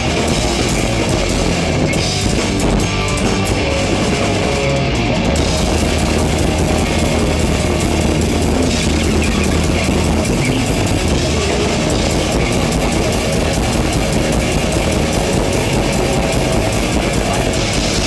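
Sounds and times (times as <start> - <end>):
heavy metal band playing live: 0.0 - 18.0.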